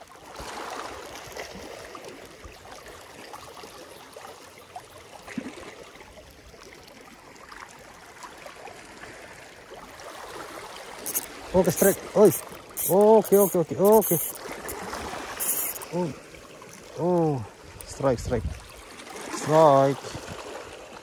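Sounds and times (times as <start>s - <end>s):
waves lapping against rocks: 0.1s - 4.4s, 5.1s - 21.0s.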